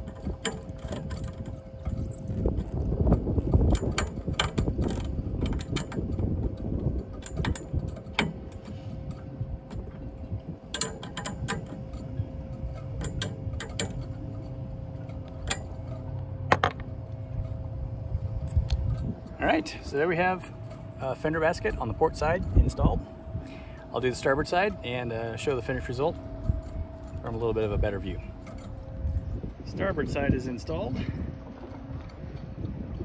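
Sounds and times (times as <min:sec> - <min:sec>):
metal clicks and rattles: 0:00.0 - 0:17.7
faint steady hum: 0:00.0 - 0:33.0
low rumble: 0:00.0 - 0:33.0.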